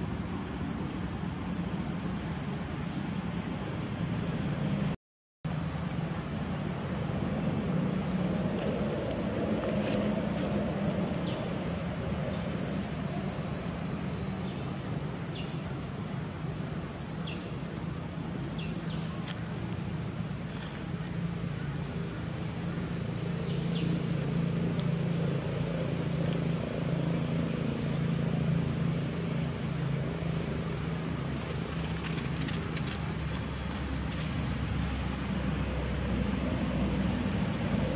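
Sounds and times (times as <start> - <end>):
high-pitched insect chorus: 0.0 - 37.9.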